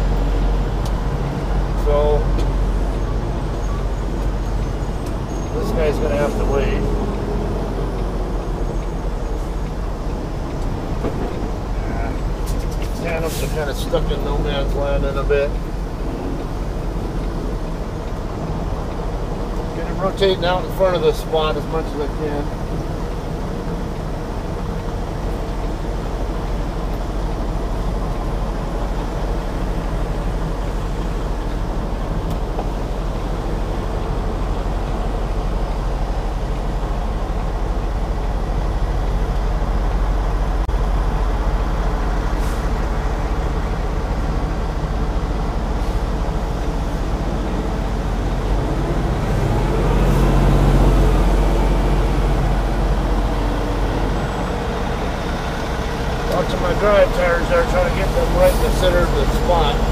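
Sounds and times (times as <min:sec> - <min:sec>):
truck diesel engine running: 0:00.0 - 0:59.9.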